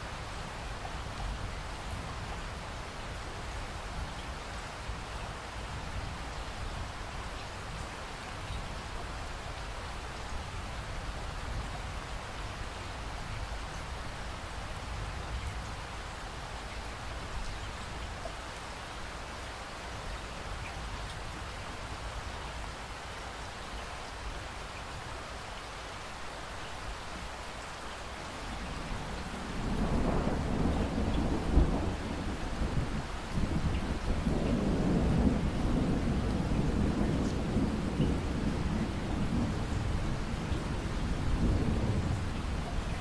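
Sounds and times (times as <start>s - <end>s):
steady rain falling: 0.0s - 43.0s
thunder rumbling: 29.2s - 43.0s.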